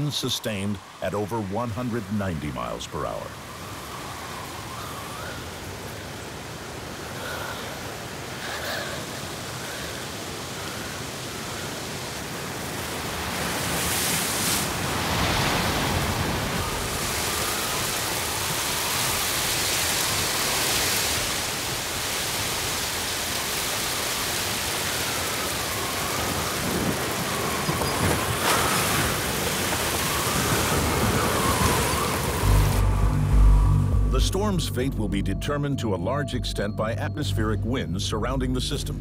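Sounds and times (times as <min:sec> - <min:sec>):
faint howl of wind: 0:00.0 - 0:34.2
heavy rain: 0:00.0 - 0:34.6
hurricane wind: 0:00.0 - 0:34.6.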